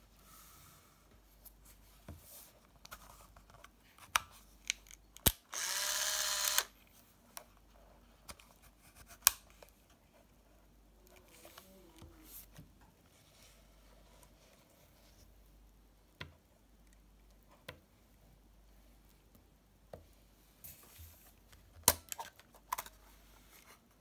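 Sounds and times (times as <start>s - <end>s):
camera shutter click: 5.3s - 6.7s
film advance motor whir: 5.5s - 6.7s.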